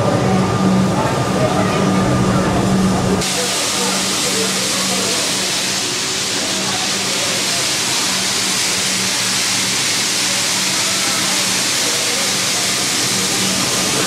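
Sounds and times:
low hum: 0.0 - 3.2
steam locomotive hissing: 0.0 - 14.0.

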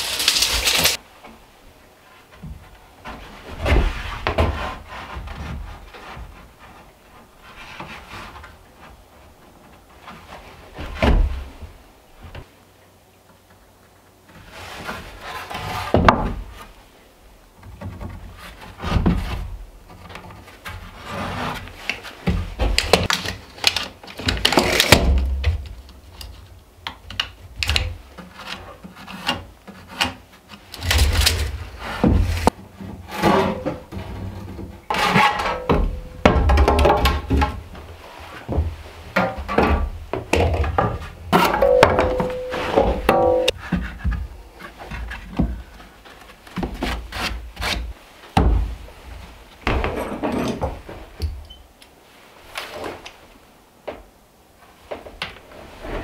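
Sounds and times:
wooden boards knocking: 38.6 - 43.5.

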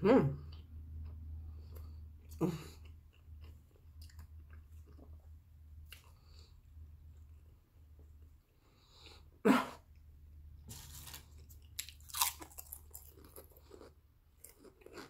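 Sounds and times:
chewing potato chips: 10.7 - 15.0.

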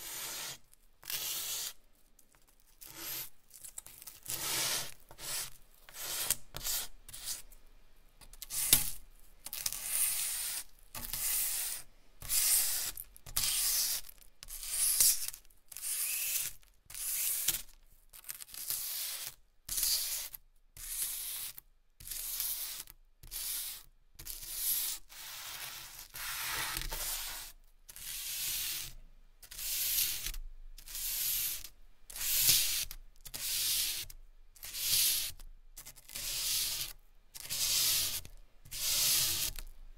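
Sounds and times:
charcoal scraping on paper: 0.0 - 1.8, 2.8 - 7.5, 8.4 - 17.7, 18.4 - 39.7.

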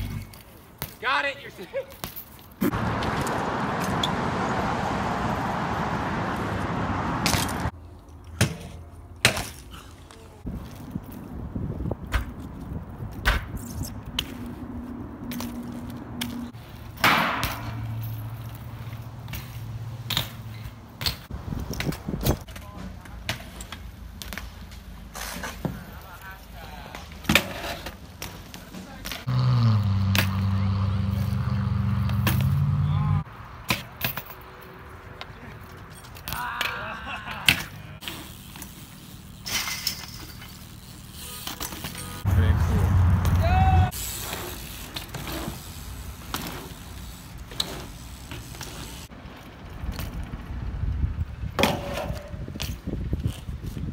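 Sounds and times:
bike scraping: 1.7 - 7.8, 13.4 - 33.2, 37.6 - 50.7
bmx bike clacks and knocks: 16.2 - 25.8, 51.5 - 53.9.

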